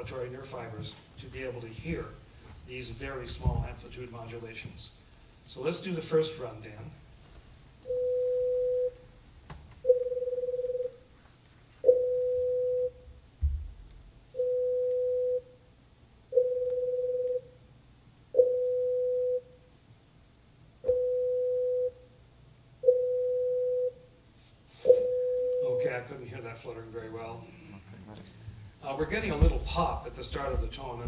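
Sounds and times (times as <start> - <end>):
pure test tones: 9.8 - 10.9, 16.3 - 17.5, 18.4 - 19.5, 20.8 - 22.0
low thump: 13.4 - 13.8, 29.2 - 31.0.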